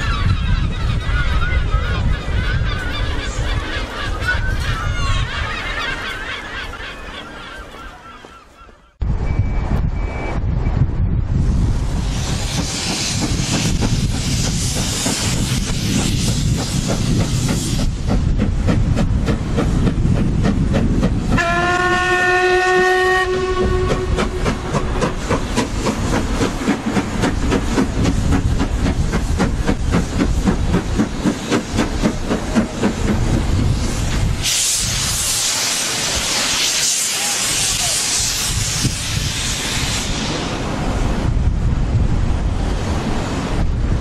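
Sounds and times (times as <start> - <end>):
steam hiss: 11.7 - 20.3, 23.5 - 41.3
steam locomotive beat: 11.8 - 41.3
low steam whistle: 21.4 - 24.4.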